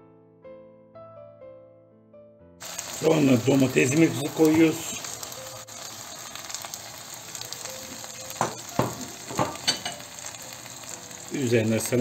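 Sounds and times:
vegetables sizzling in oil: 0:02.6 - 0:12.0.

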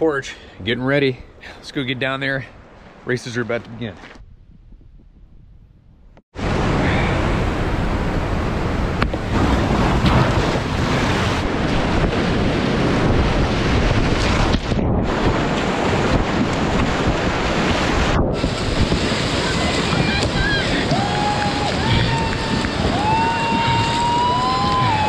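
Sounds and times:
wind buffeting microphone: 0:03.8 - 0:25.0
whitewater rapids rushing: 0:18.4 - 0:25.0.

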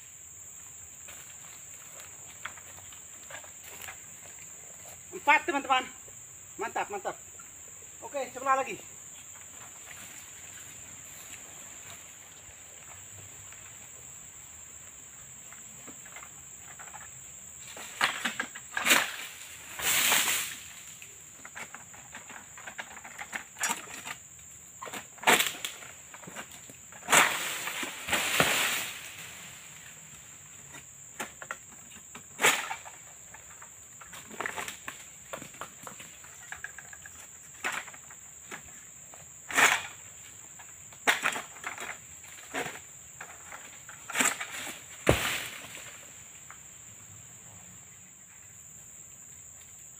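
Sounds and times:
high insect drone: 0:00.0 - 0:49.9
fronds rustling swishes: 0:17.6 - 0:21.0, 0:27.1 - 0:30.0, 0:44.1 - 0:46.3.

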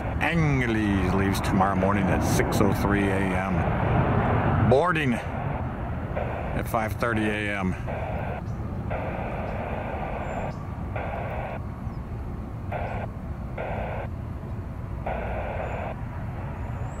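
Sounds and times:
distant jet aircraft rumble: 0:00.0 - 0:17.0.

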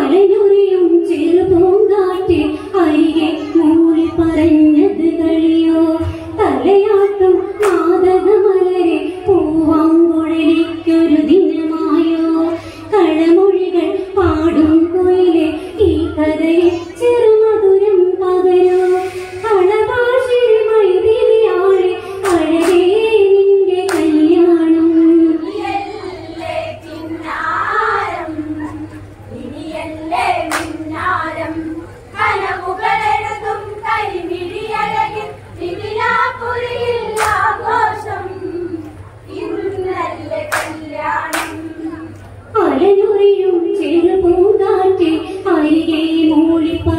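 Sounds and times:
sharp hand claps: 0:07.6 - 0:07.9, 0:22.2 - 0:22.9, 0:23.9 - 0:24.2, 0:30.5 - 0:30.8, 0:37.1 - 0:37.5, 0:40.5 - 0:41.6
group singing together: 0:18.5 - 0:46.9.

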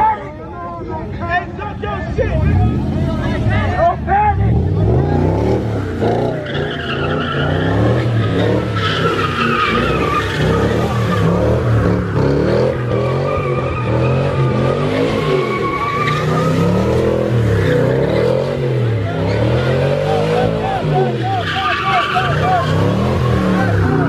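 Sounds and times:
car engine revving: 0:02.2 - 0:24.0
tyres squealing: 0:04.8 - 0:24.0.

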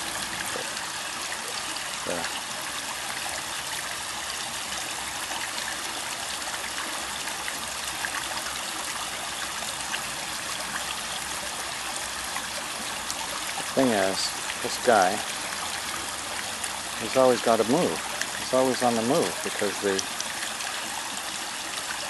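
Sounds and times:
water splashes and drips: 0:00.0 - 0:22.0
water trickling: 0:00.0 - 0:22.0.

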